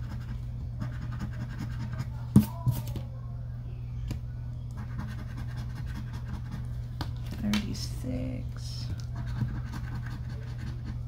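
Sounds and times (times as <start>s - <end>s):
steady low hum: 0.0s - 11.0s
lottery ticket scratching: 9.1s - 11.0s.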